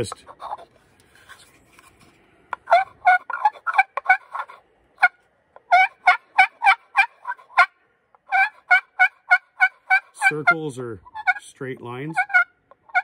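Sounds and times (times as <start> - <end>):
wooden pot call turkey yelps: 0.3 - 0.7, 2.6 - 11.4, 12.2 - 13.0.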